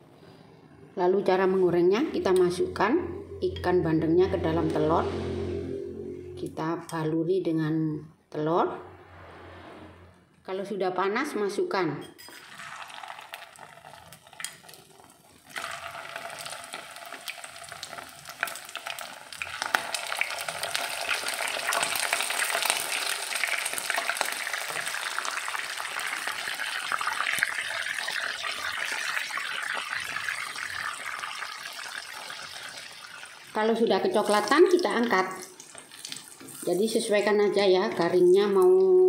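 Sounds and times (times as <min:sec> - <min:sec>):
fish sizzling in hot oil: 0:12.4 - 0:33.6.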